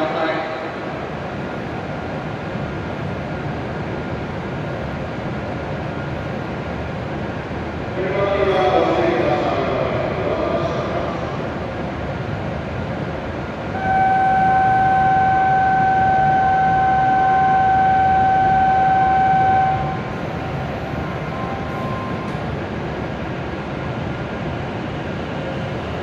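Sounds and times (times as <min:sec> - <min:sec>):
train and station hum: 0:00.0 - 0:26.0
steady electronic tone: 0:13.7 - 0:23.2.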